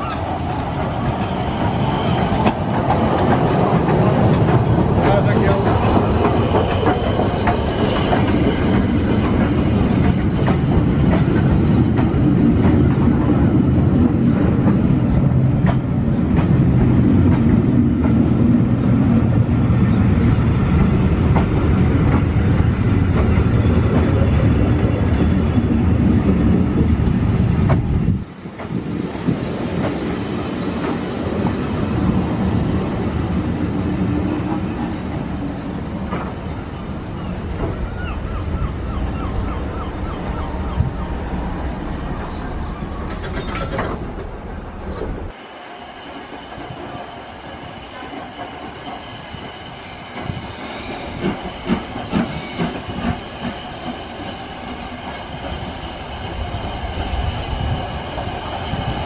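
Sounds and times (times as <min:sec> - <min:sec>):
wheels clacking over rail joints: 0:00.0 - 0:18.6, 0:43.0 - 0:45.3
train coaches rolling on rails: 0:00.0 - 0:59.0.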